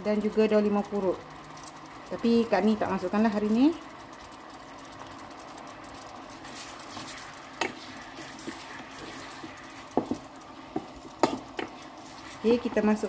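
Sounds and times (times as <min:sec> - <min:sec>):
sauce sizzling in a pot: 0:00.0 - 0:13.0
spatula scraping: 0:04.5 - 0:13.0
spatula knocking against pot: 0:10.8 - 0:11.8.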